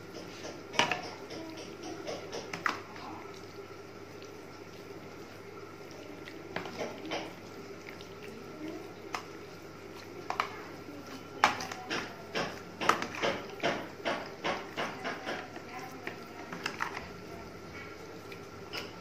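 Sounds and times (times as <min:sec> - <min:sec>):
wet slaps of chicken in tub: 0:11.4 - 0:16.9.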